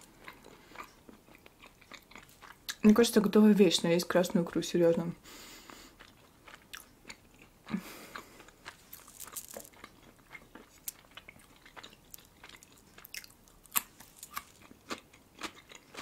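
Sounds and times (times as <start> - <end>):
mouth chewing wetly: 5.7 - 16.0
cucumber crunch: 6.0 - 16.0.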